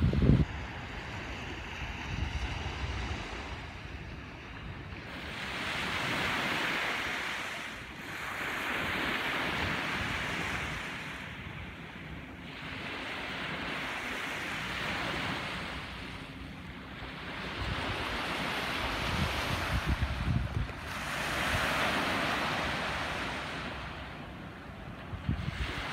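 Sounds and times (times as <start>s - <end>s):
wind noise on microphone: 0.0s - 7.4s, 17.4s - 24.1s, 24.8s - 25.9s
waves breaking on beach: 0.0s - 25.9s.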